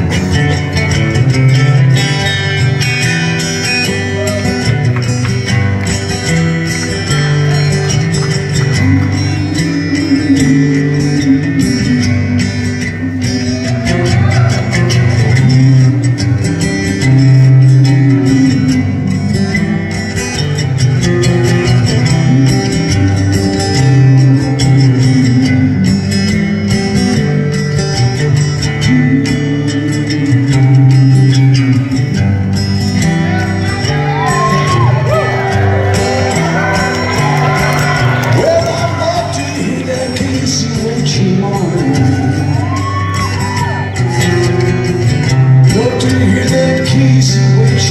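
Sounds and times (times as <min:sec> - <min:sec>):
acoustic guitar strumming and picking: 0:00.0 - 0:47.9.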